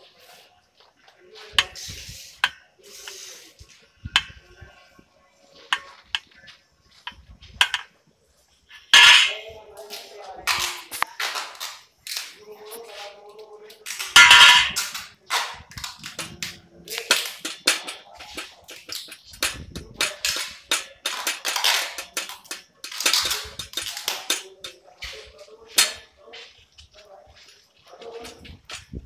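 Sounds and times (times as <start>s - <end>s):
pipes clicking and clattering: 1.4s - 4.6s, 7.0s - 8.0s, 8.7s - 9.6s, 13.7s - 26.2s, 26.8s - 29.0s.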